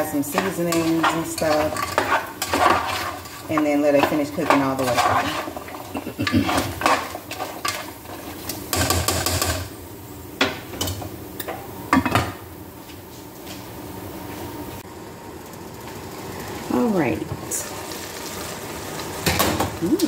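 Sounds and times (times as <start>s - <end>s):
spoon stirring and scraping pot: 0.0s - 9.6s.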